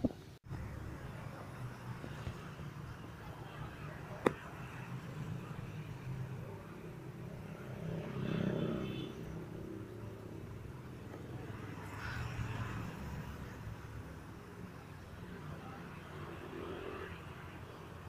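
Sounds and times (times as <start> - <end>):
motor vehicle passing: 0.5 - 14.9.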